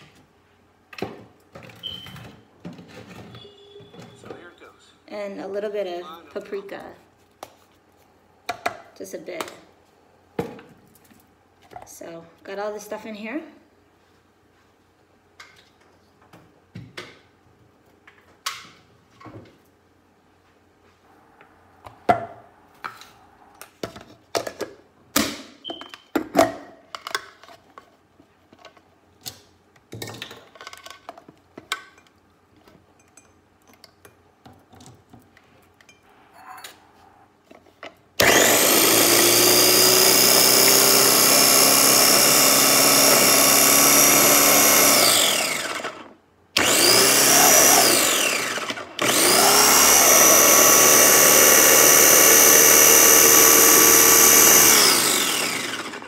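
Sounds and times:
food processor parts clicking: 38.2 - 46.0, 46.6 - 56.0
food processor motor whine: 38.2 - 56.0.

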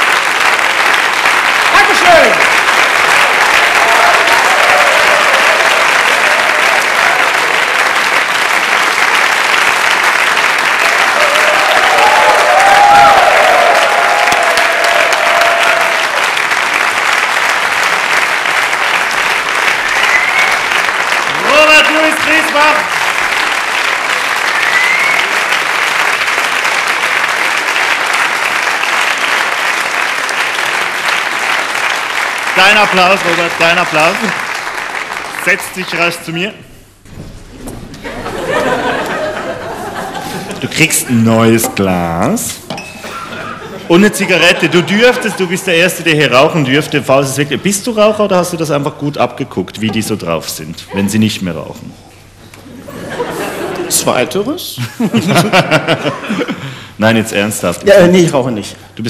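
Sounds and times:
audience applauding: 0.0 - 36.6, 38.0 - 42.4, 43.5 - 48.2.

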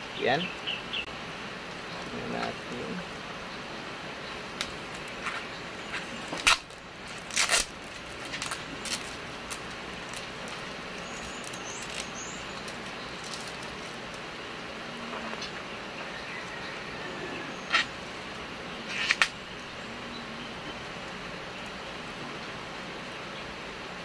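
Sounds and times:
packing tape peeling off plastic: 6.3 - 14.2, 18.9 - 19.4.

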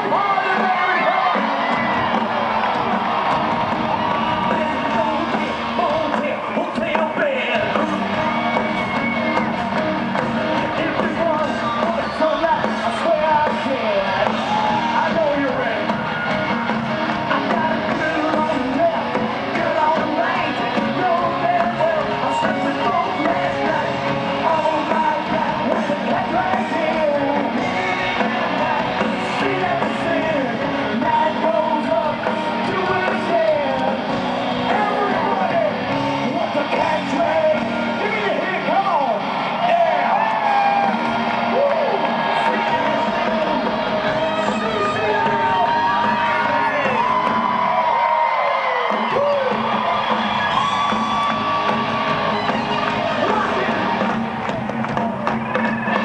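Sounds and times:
male lead vocal: 0.0 - 1.7, 4.2 - 16.1, 17.1 - 47.3
rock band playing live: 0.0 - 56.0.

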